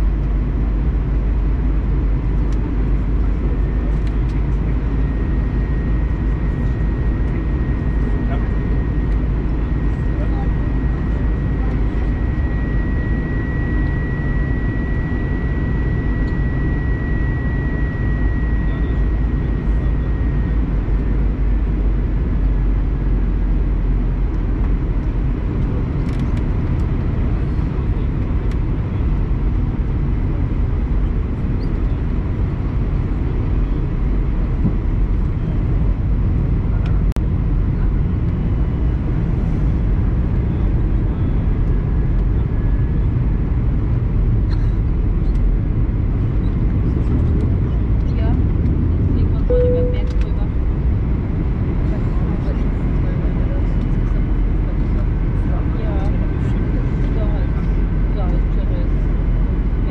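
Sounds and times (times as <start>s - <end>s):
airplane cabin noise in flight: 0.0s - 59.9s
thin high tone: 49.5s - 50.2s.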